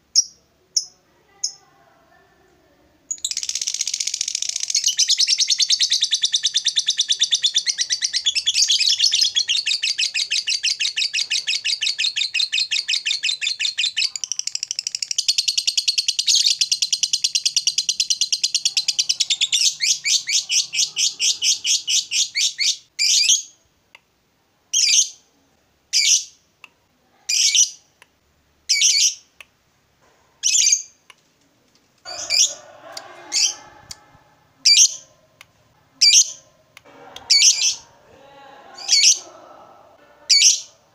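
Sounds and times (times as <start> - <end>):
lovebird chattering trill: 3.1 - 23.4, 34.6 - 35.0, 36.0 - 36.4.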